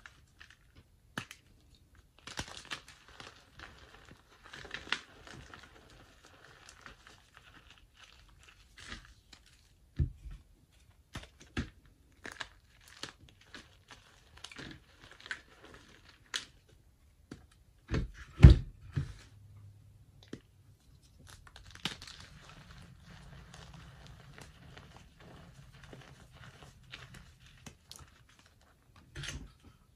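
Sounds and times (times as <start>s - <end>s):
chalk crunching and crackling: 2.2s - 9.8s, 11.2s - 16.6s, 20.8s - 28.9s.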